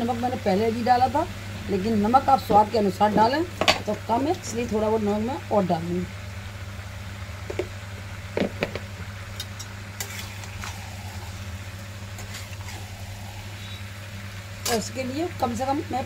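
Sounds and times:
low hum: 0.0 - 16.0
vegetables sizzling: 0.0 - 16.0
spatula scraping vegetables: 10.0 - 11.3, 12.2 - 13.0.

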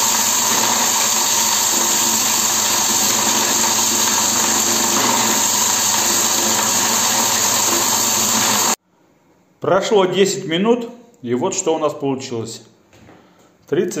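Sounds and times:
extraction machine running: 0.0 - 8.8
granules pouring into bucket: 0.0 - 8.8.

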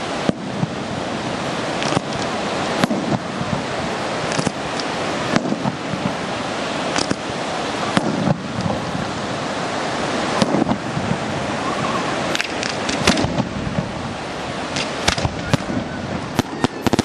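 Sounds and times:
rushing hiss of fireworks: 0.0 - 17.0
firework cracks: 1.6 - 9.1, 10.2 - 11.2, 12.2 - 14.0, 14.6 - 17.0.

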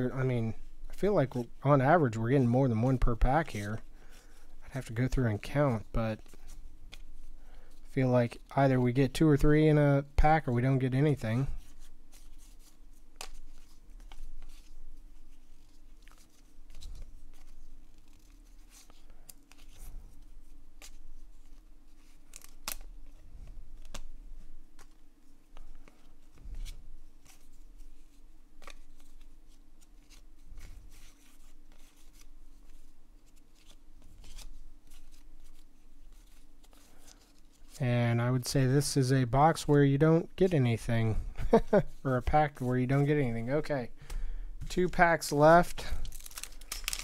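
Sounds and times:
cards flipping with clicks and scrapes: 5.8 - 7.9, 11.3 - 37.8, 45.6 - 47.0.

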